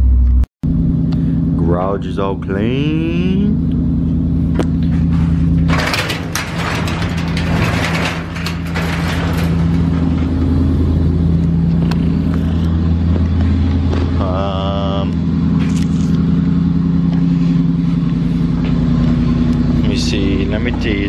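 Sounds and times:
clattering: 4.8s - 12.8s
pickup engine idling: 6.3s - 20.8s.

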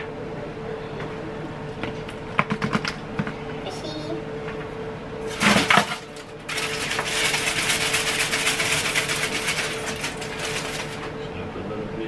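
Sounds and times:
steady hum: 0.0s - 12.0s
foil crinkling: 6.5s - 11.0s.

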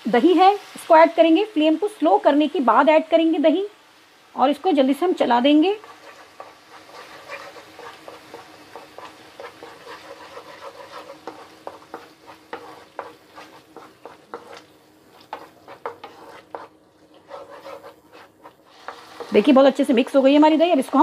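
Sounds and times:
soft sizzle from pan: 0.0s - 21.0s
wooden spoon scraping a pan: 5.6s - 21.0s.

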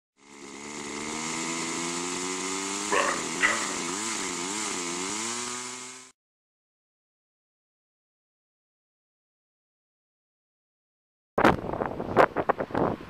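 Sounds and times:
buzzing motor-like drone: 0.2s - 6.1s.

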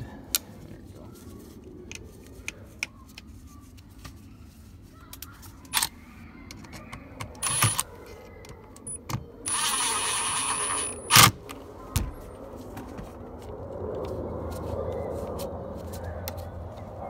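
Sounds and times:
power driver whining: 7.4s - 7.9s, 8.8s - 11.4s.

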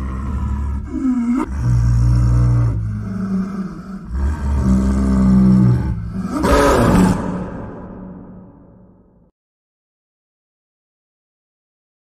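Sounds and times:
big cat rasping snarl: 0.0s - 8.3s
big cat growling: 0.0s - 9.0s.

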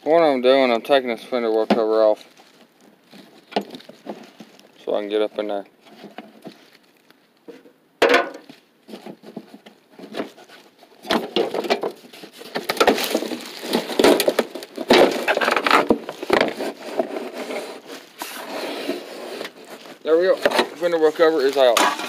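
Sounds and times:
panel scraping and rubbing: 8.9s - 22.0s.

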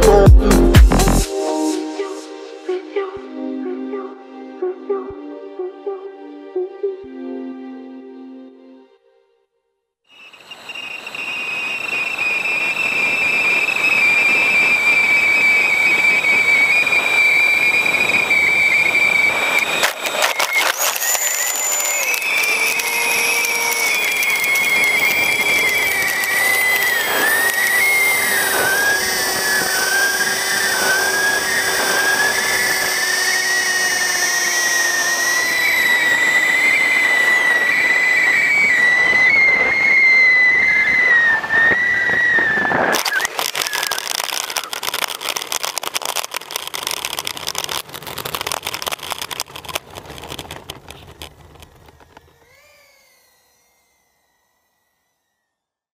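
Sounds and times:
crackling rattle: 10.2s - 53.6s
electric ducted fan whining: 10.2s - 55.6s.

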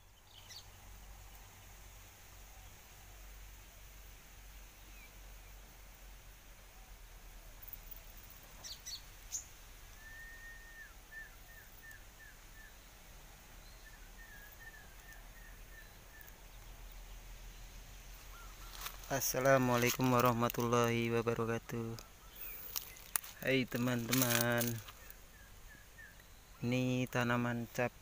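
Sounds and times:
low steady hiss: 0.0s - 28.0s
faint bird calling: 8.6s - 12.9s, 13.6s - 17.0s, 18.1s - 20.6s, 21.2s - 27.1s.

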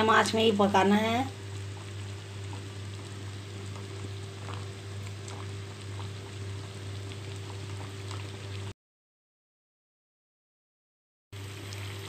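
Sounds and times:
hot oil bubbling and crackling: 0.0s - 8.8s, 11.4s - 12.0s.

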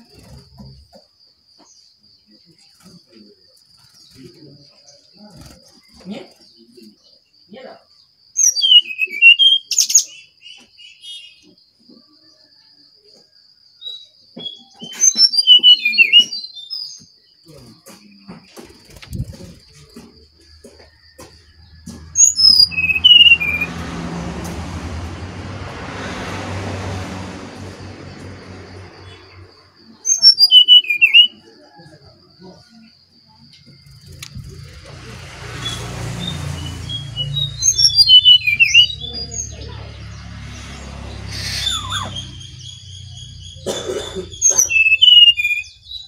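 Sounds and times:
bird whistled chirps: 8.4s - 10.3s, 13.8s - 17.0s, 22.1s - 23.7s, 30.1s - 31.6s, 35.6s - 39.4s, 41.3s - 43.6s, 44.3s - 46.0s.

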